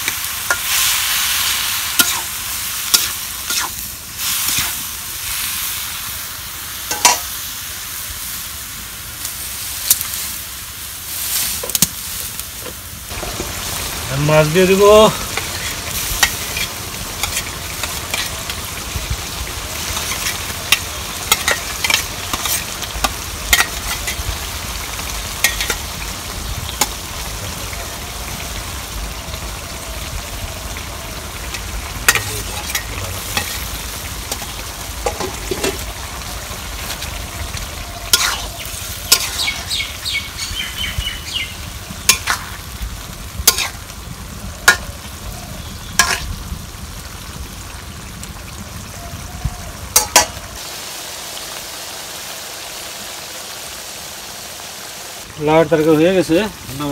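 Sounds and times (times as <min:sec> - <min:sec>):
food sizzling in a wok: 0:00.0 - 0:56.9.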